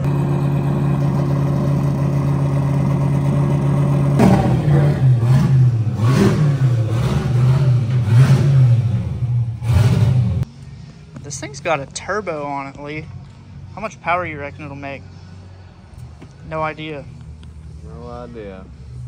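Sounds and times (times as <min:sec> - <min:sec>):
car engine idling and revving: 0:00.0 - 0:11.4.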